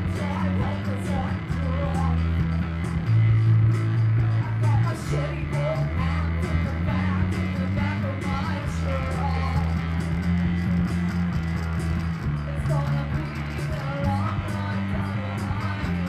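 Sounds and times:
woman singing: 0.0 - 2.4, 4.4 - 9.8, 12.5 - 16.0
electric bass: 0.0 - 16.0
keyboard: 0.0 - 16.0
steady drum beat: 0.0 - 16.0.

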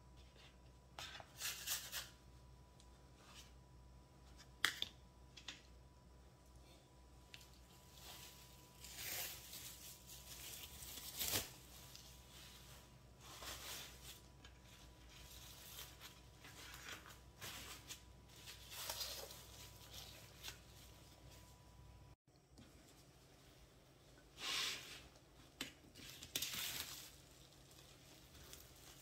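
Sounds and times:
cling wrap rustling and crinkling: 7.4 - 21.5, 25.9 - 29.0.

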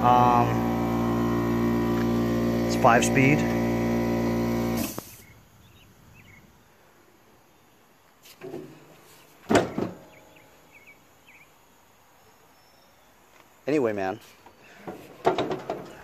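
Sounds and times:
machine hum: 0.0 - 5.0
mower seat thud: 1.9 - 5.1
plastic and metal clunk with rattle: 8.4 - 8.8, 9.4 - 10.2, 14.8 - 16.0.

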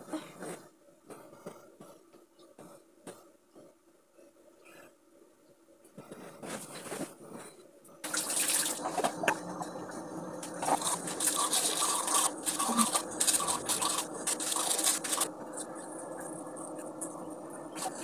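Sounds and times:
toothbrush scrubbing teeth: 10.4 - 17.1.

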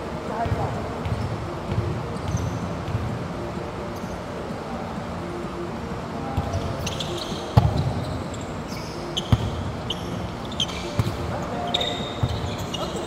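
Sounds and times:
sneaker squeaks: 0.4 - 3.2, 4.0 - 4.2, 6.4 - 13.0.

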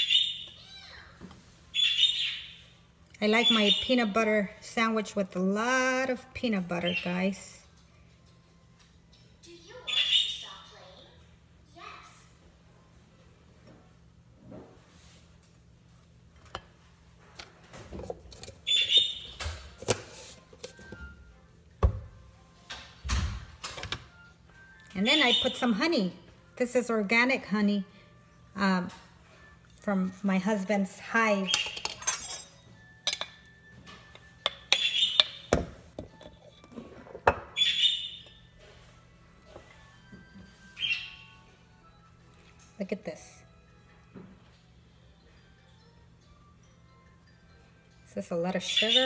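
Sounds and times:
spoon clinking against glass jar: 31.5 - 33.4.

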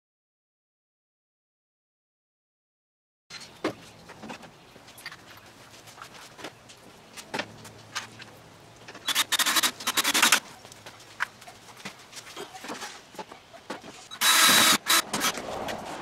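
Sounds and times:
cordless drill rattling burst: 9.1 - 10.4, 14.1 - 15.3.

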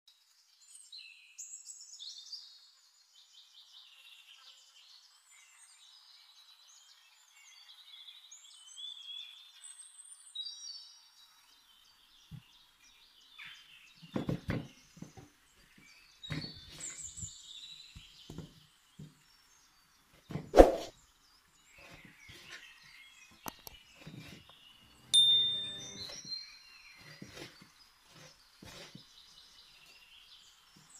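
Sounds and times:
knife cutting on wooden board: 20.3 - 20.9, 27.1 - 29.0.

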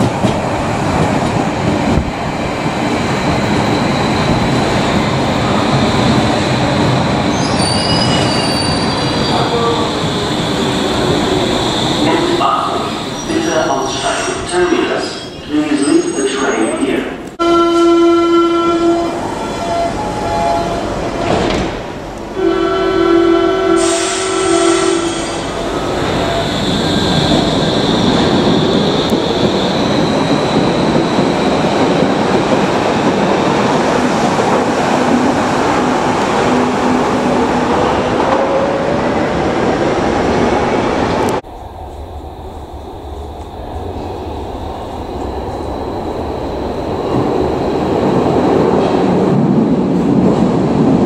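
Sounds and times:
station background: 9.1 - 21.2.

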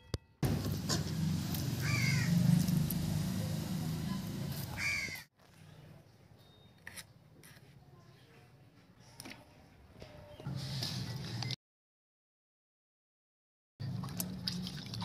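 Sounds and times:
low outdoor rumble: 0.4 - 5.1
crow cawing: 1.8 - 2.4, 4.8 - 5.2.

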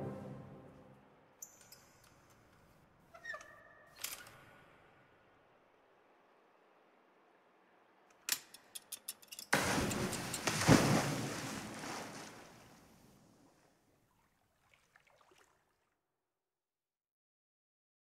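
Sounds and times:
big splash into water: 9.6 - 13.6
water churning: 9.6 - 15.9.

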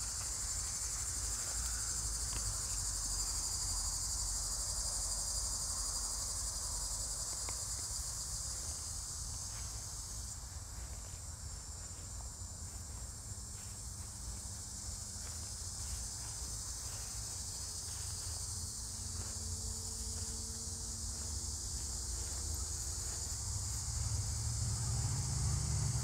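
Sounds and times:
crickets chirping: 0.0 - 26.0.

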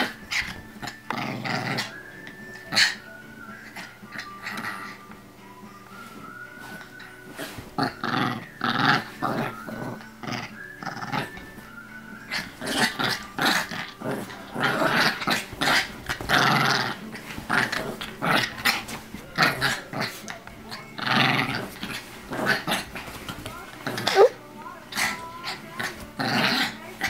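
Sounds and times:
small dog growling and barking: 0.0 - 2.0, 7.3 - 11.4, 12.3 - 27.0.

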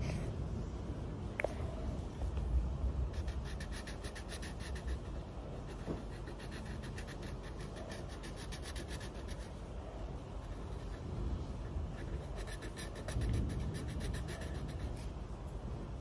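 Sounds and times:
low steady rumble: 0.0 - 16.0
marker scribbling on paper: 3.1 - 9.6, 10.3 - 15.2.

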